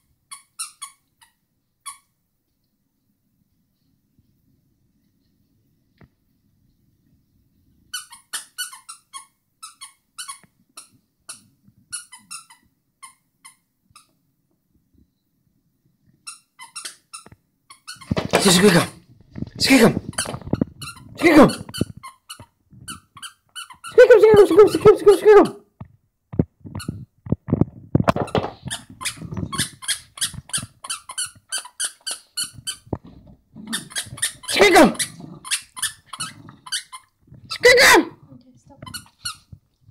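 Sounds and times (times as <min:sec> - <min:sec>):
squeaky toy squeaking: 0:00.3 - 0:02.1, 0:07.9 - 0:14.1, 0:16.2 - 0:18.9, 0:19.7 - 0:25.6, 0:28.2 - 0:32.9, 0:33.6 - 0:38.1, 0:38.8 - 0:39.5.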